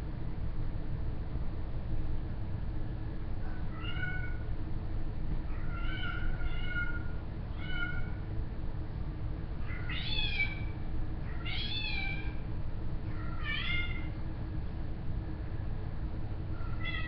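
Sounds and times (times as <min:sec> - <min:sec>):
low electrical hum: 0:00.0 - 0:17.0
pet's high-pitched calls: 0:09.7 - 0:10.7.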